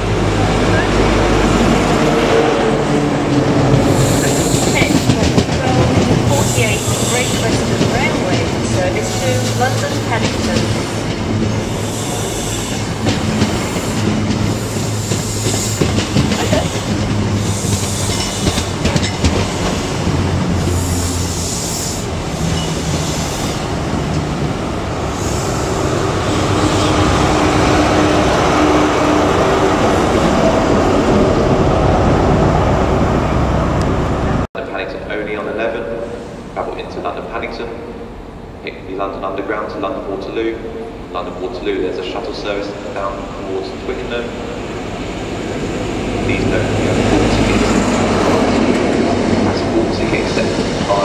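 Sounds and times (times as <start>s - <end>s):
wheels clattering over rail joints: 3.2s - 21.3s
diesel engine drone: 20.0s - 34.5s.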